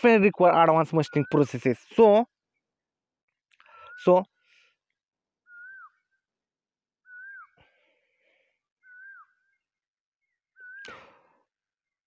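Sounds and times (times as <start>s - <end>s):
bird whistled call: 1.0s - 1.8s, 5.4s - 6.3s, 7.0s - 7.6s, 8.8s - 11.3s.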